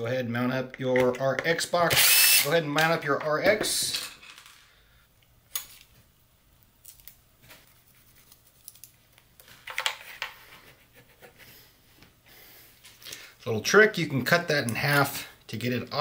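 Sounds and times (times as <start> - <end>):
handling of small parts: 3.2 - 4.8, 8.3 - 10.4.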